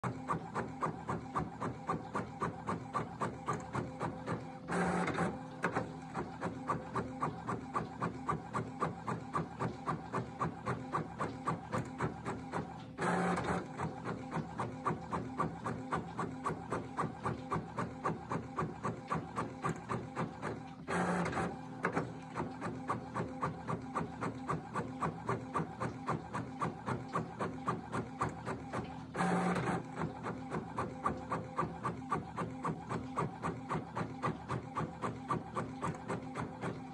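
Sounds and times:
printer paper feed rush: 0:00.0 - 0:36.9.

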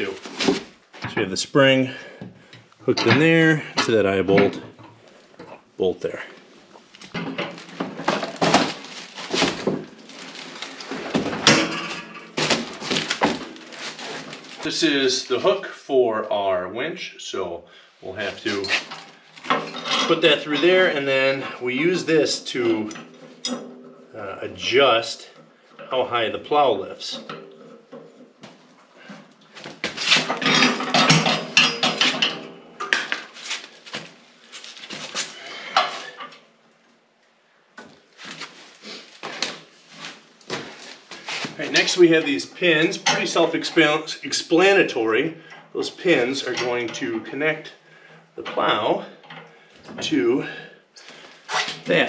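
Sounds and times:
metal hardware clunking and scraping: 0:02.0 - 0:05.6, 0:06.7 - 0:14.7, 0:18.5 - 0:21.6, 0:22.7 - 0:24.1, 0:27.2 - 0:28.3, 0:29.1 - 0:33.4, 0:34.9 - 0:36.4, 0:42.7 - 0:43.6.

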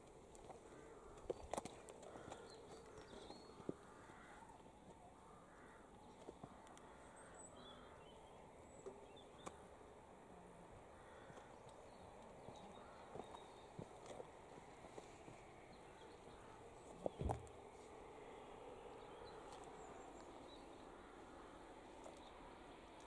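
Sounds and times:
distant bird chirps: 0:10.9 - 0:22.7.

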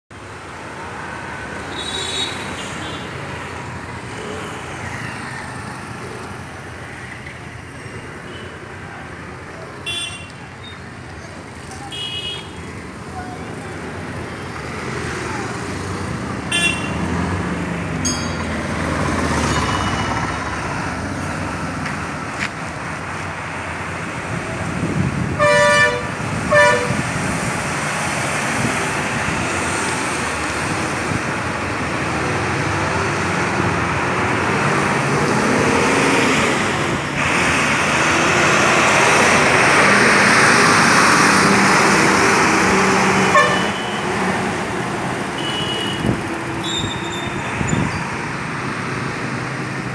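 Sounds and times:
road traffic passing: 0:00.1 - 0:49.9
heavy lorry engine passing: 0:12.6 - 0:49.9
vehicle horn honking: 0:16.5 - 0:17.0, 0:25.4 - 0:27.0, 0:43.3 - 0:44.1, 0:45.4 - 0:47.0.

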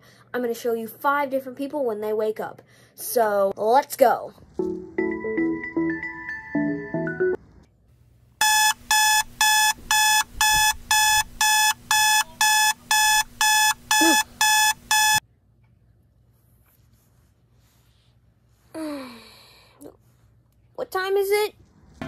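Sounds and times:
alarm clock beeping: 0:08.4 - 0:15.2.

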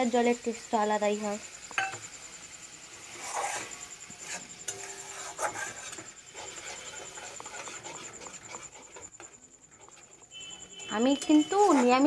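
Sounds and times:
metal spatula scraping spice paste: 0:02.9 - 0:12.0.

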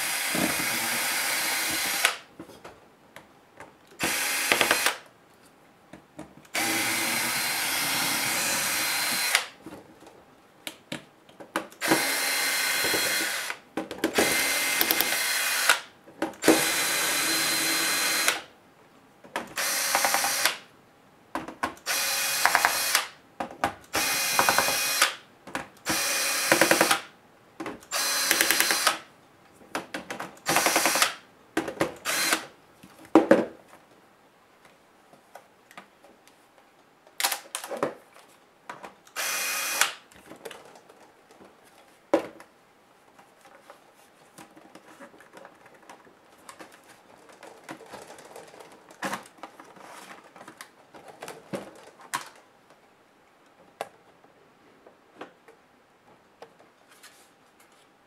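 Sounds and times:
cordless drill spinning: 0:00.0 - 0:02.2, 0:04.0 - 0:05.0, 0:06.6 - 0:09.5, 0:11.8 - 0:13.6, 0:14.2 - 0:18.4, 0:19.6 - 0:20.5, 0:21.9 - 0:23.1, 0:24.0 - 0:25.1, 0:25.9 - 0:26.9, 0:27.9 - 0:29.0, 0:30.5 - 0:31.1, 0:32.0 - 0:32.4, 0:39.2 - 0:40.0.

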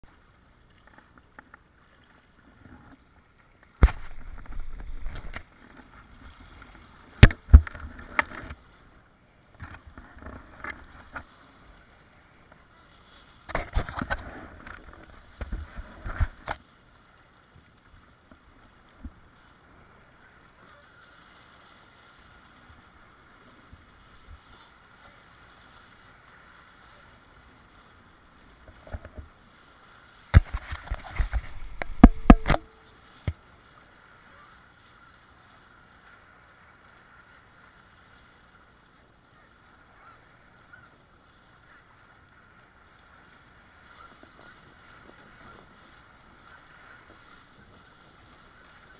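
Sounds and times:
water rushing and splashing: 0:00.0 - 0:48.9
board knocking on water: 0:03.8 - 0:05.5, 0:07.2 - 0:08.5, 0:30.3 - 0:33.4.

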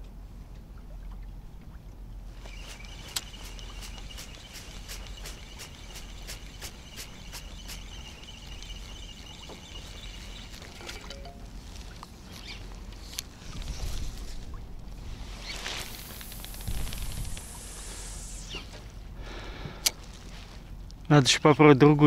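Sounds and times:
fishing reel whirring and clicking: 0:02.4 - 0:11.0.

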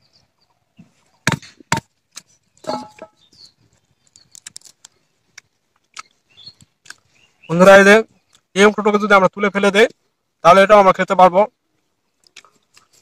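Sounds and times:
husk pieces clicking and crackling: 0:04.0 - 0:07.1.

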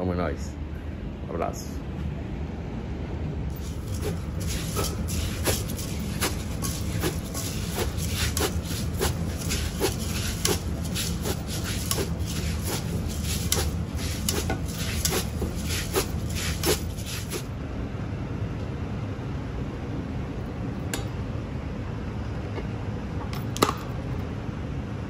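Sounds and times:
steady low hum: 0:00.0 - 0:25.0
dry rice stirred in metal pot: 0:03.5 - 0:17.4.

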